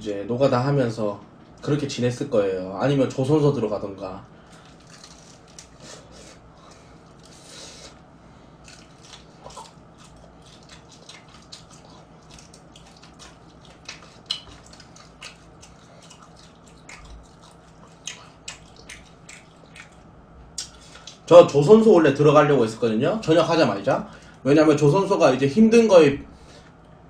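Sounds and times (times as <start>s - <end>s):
faint steady hum: 0.0s - 27.0s
person crunching and chewing food: 4.4s - 21.3s.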